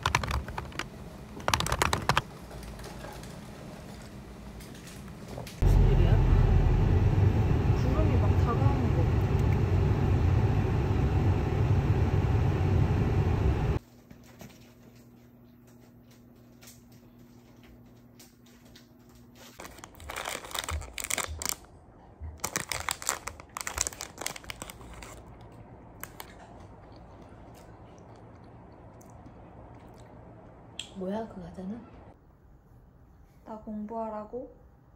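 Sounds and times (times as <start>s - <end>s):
plastic tray crinkling: 19.6s - 21.6s, 22.4s - 25.2s.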